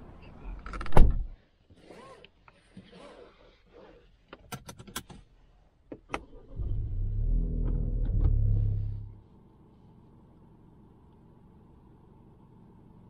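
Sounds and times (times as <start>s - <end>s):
car engine starting and idling: 6.0s - 9.6s.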